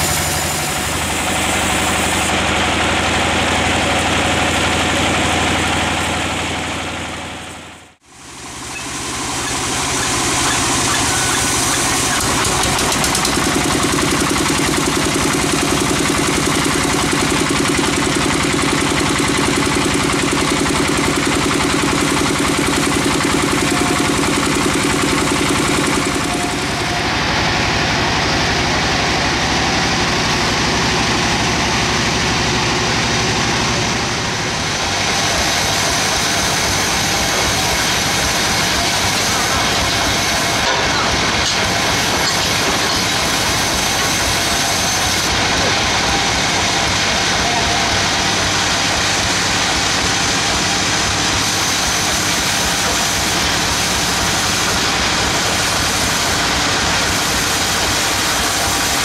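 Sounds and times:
stationary engine running: 0:00.0 - 0:59.0
bandsaw cutting log: 0:08.8 - 0:27.1, 0:34.6 - 0:59.0.

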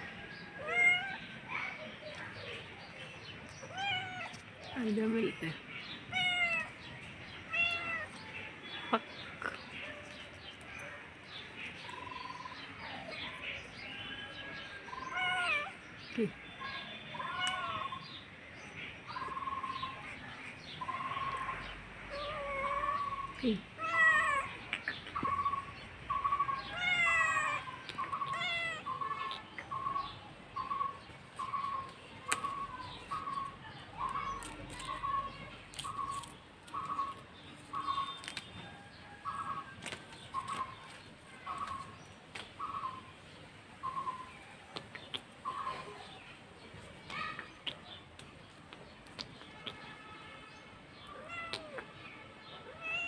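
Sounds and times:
birds chirping faintly: 0:00.0 - 0:53.0
cat mewing: 0:06.1 - 0:06.8, 0:07.5 - 0:08.2, 0:15.0 - 0:15.8, 0:22.1 - 0:24.6, 0:26.3 - 0:29.4, 0:51.1 - 0:51.9, 0:52.6 - 0:53.0.

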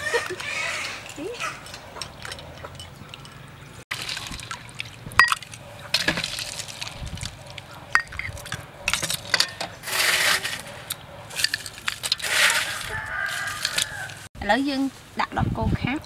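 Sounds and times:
metal ladle clinking and scraping: 0:00.2 - 0:03.7, 0:07.9 - 0:14.1
dessert sloshing: 0:03.9 - 0:09.3.

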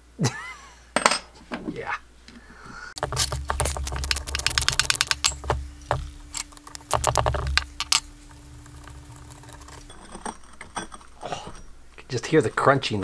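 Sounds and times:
ratchet wrench clicking: 0:03.1 - 0:05.6, 0:06.3 - 0:08.0.

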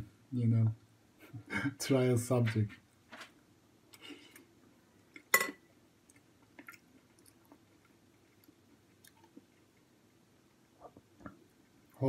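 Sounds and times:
person chewing food: 0:06.0 - 0:10.0
wet mouth clicks and smacks: 0:08.4 - 0:09.5.

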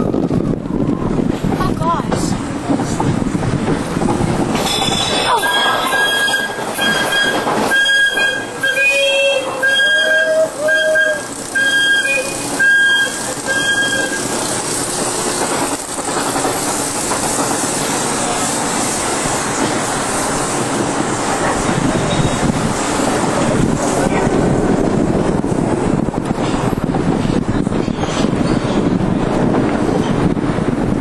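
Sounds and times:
wind rushing: 0:00.0 - 0:05.9, 0:14.1 - 0:31.0
wheels rumbling on track: 0:00.0 - 0:31.0
roller coaster squeal: 0:04.6 - 0:14.6, 0:21.5 - 0:22.6, 0:27.3 - 0:29.0.

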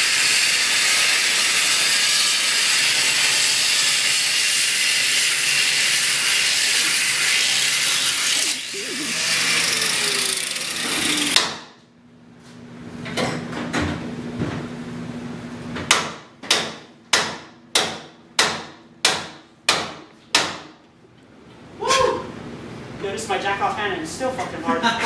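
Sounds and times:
angle grinder cutting metal: 0:00.0 - 0:11.4
hammer strikes: 0:11.0 - 0:11.7, 0:15.9 - 0:20.7.

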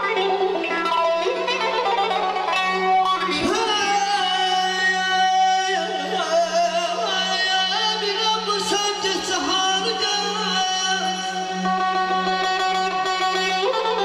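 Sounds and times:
electric guitar: 0:00.0 - 0:14.0
man singing through microphone: 0:03.2 - 0:14.0.

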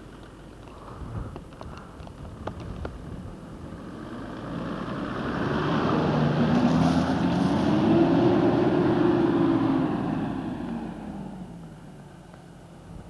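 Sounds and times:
off-road vehicle engine passing: 0:03.4 - 0:12.3.

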